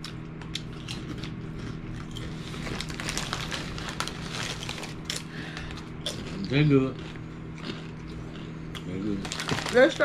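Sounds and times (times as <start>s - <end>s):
chips being chewed: 0.0s - 10.0s
microwave oven humming: 0.0s - 10.0s
plastic chip bag crinkling: 2.0s - 6.6s, 9.0s - 10.0s.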